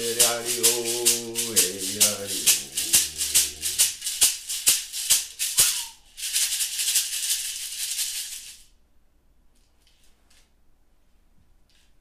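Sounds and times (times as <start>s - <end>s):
hand rattle shaken: 0.0s - 8.7s.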